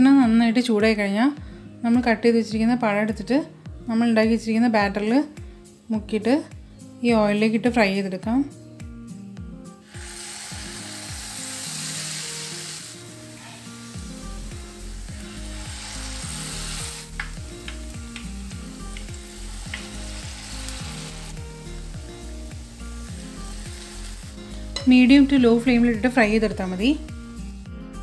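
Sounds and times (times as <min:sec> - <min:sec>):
food sizzling in hot oil: 0:09.8 - 0:28.0.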